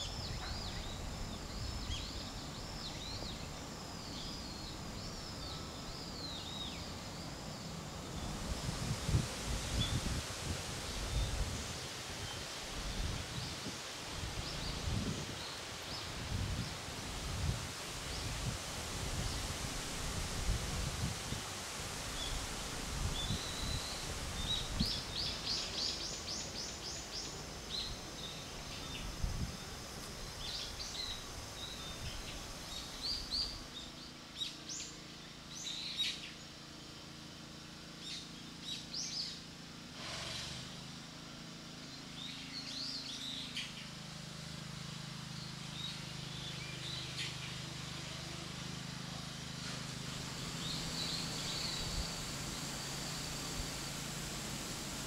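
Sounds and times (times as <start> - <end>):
small birds chirping: 0.0 - 16.9, 22.0 - 37.2, 41.8 - 55.0
low steady hum: 0.0 - 39.9, 41.0 - 55.0
wind rumbling on microphone: 8.0 - 26.4, 27.7 - 33.7.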